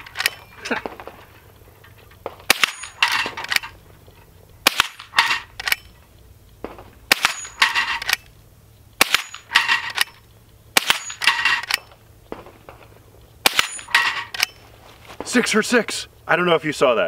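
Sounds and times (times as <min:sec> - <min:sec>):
metallic clatter of rifle lever: 0:00.0 - 0:06.0, 0:07.2 - 0:08.3, 0:09.1 - 0:10.2, 0:10.9 - 0:12.0, 0:13.6 - 0:14.6
rifle shots: 0:02.4 - 0:03.7, 0:04.6 - 0:05.8, 0:06.6 - 0:08.2, 0:09.0 - 0:12.7, 0:13.4 - 0:14.6.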